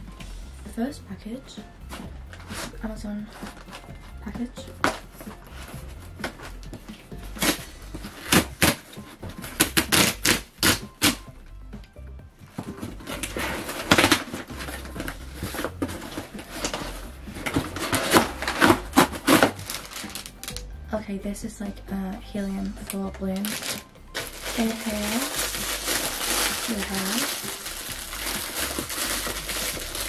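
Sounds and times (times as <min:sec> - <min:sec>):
packing paper rustling: 0:04.8 - 0:11.2, 0:12.5 - 0:20.6, 0:22.7 - 0:30.0
tape ripping: 0:07.4 - 0:11.2, 0:12.6 - 0:20.6, 0:22.8 - 0:30.0.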